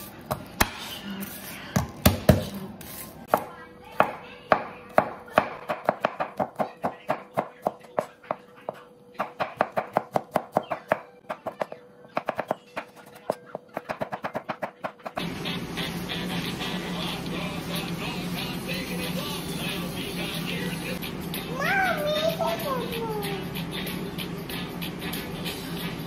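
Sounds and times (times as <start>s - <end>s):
knife chopping on wooden board: 4.0s - 15.0s.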